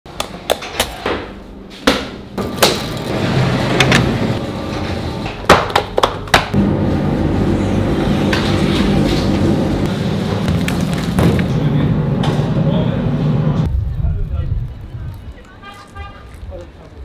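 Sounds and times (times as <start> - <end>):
machine hum: 2.3 - 5.4, 6.6 - 13.8.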